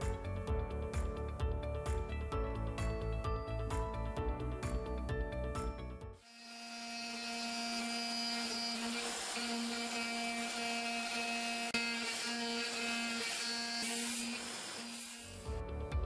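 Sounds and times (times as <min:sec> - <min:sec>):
machine spindle whining: 0:06.2 - 0:15.4.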